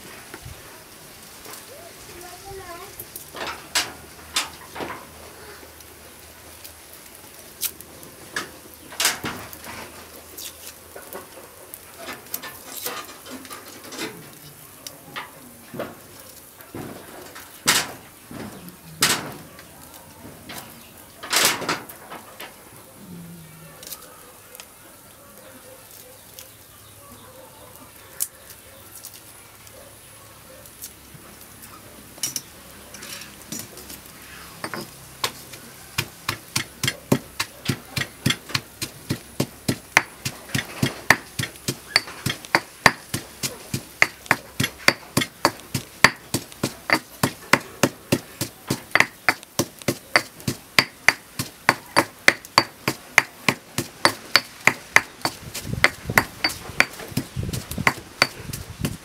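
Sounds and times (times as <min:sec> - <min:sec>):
pestle pounding in stone mortar: 0:36.0 - 0:59.0.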